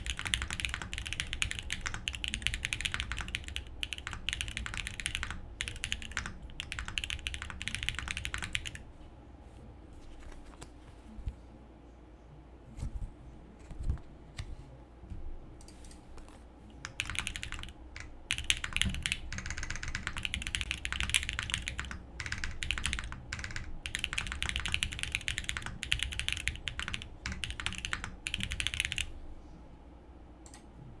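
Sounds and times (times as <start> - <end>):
mechanical keyboard typing: 0.0 - 8.8, 16.8 - 29.1.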